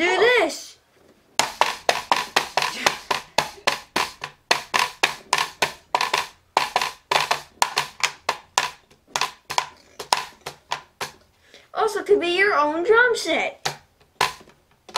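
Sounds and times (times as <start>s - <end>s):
sharp taps on hard plastic: 1.4s - 11.3s, 13.6s - 14.9s.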